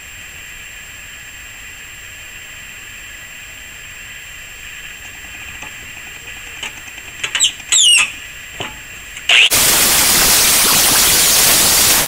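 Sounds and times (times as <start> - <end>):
high squeals: 4.9 - 8.4, 9.2 - 11.8.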